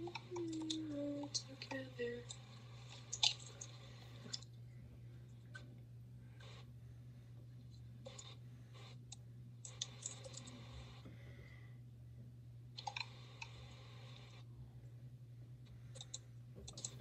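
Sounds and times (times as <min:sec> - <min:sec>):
low hum: 0:00.0 - 0:17.0
small objects clicking and tapping: 0:02.3 - 0:04.5.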